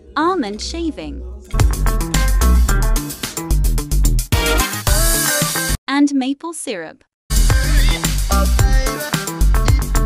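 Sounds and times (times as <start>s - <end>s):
music with heavy bass beat: 1.6s - 5.8s, 7.3s - 10.0s.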